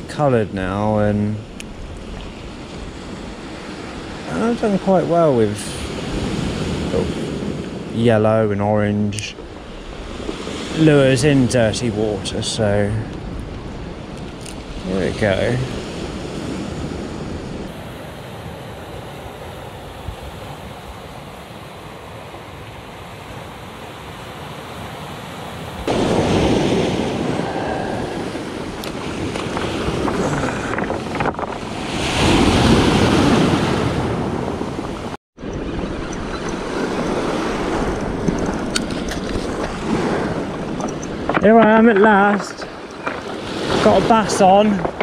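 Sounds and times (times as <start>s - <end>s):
wind buffeting microphone: 0.0s - 17.7s, 25.7s - 45.0s
surf washing up pebble beach: 17.6s - 45.0s.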